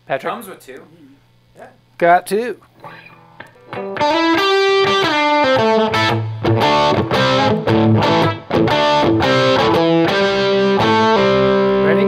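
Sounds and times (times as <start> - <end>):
electric guitar through amplifier: 2.8 - 12.0.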